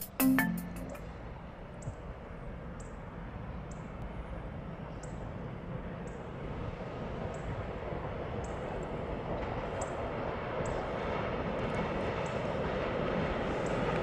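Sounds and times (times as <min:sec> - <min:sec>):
faint high chirp: 0:00.0 - 0:01.0
distant freight train rumble: 0:02.4 - 0:14.0.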